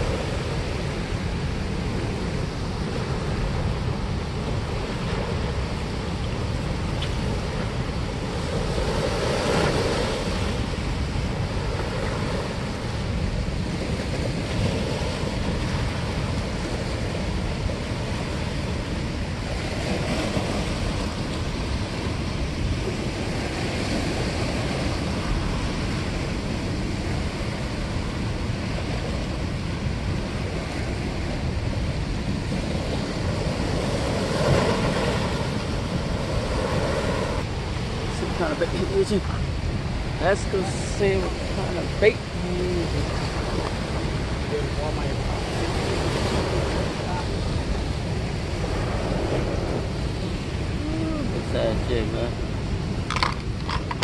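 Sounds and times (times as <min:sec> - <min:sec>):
water rushing through spillway: 0:29.4 - 0:54.0.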